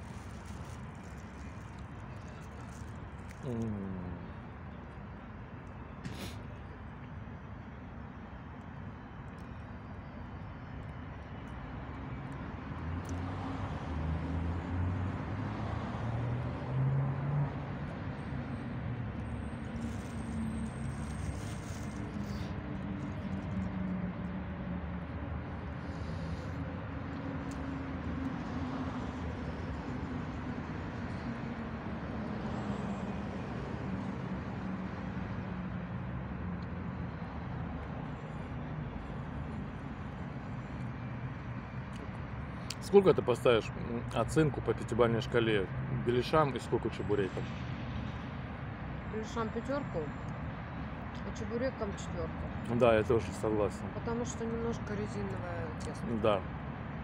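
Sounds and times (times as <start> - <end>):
traffic engine hum: 0.0 - 57.0
traffic hiss: 6.0 - 6.8, 19.5 - 23.1, 25.4 - 27.7.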